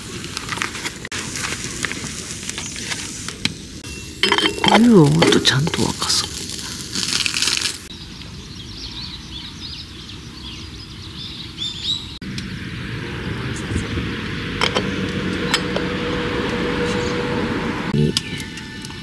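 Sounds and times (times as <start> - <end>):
outdoor ambience: 0.0 - 19.0
small birds chirping: 7.8 - 15.5.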